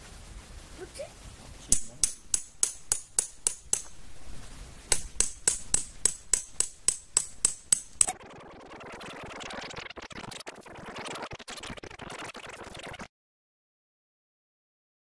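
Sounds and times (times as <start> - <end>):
tent peg being hammered: 1.6 - 4.0, 4.9 - 8.1.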